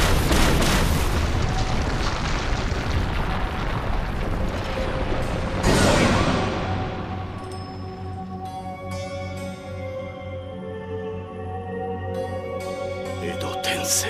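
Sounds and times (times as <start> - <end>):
rumbling and crashing: 0.0 - 8.0.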